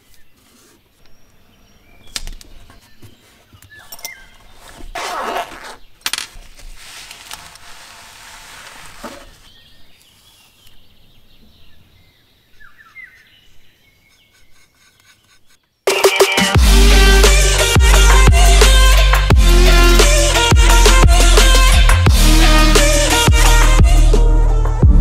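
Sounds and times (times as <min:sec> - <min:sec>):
rustling and scraping of brushes: 0:00.0 - 0:01.1, 0:02.4 - 0:10.8, 0:14.0 - 0:15.7
rasping rustle: 0:02.5 - 0:10.7, 0:14.0 - 0:15.6.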